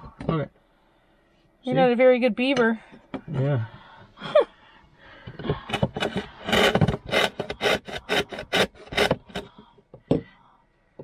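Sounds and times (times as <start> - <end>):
saw blade sawing wood: 5.7 - 9.5.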